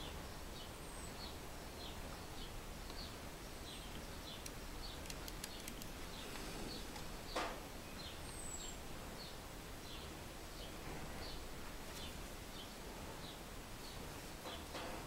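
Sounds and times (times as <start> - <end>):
small bird chirping: 0.0 - 14.0
room hiss: 0.0 - 15.0
quiet ticks: 3.9 - 7.1.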